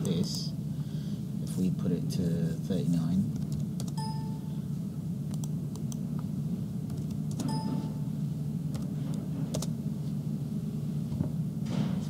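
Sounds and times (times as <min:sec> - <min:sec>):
low room hum: 0:00.0 - 0:12.0
light ringing tone: 0:04.0 - 0:04.6, 0:07.4 - 0:08.2.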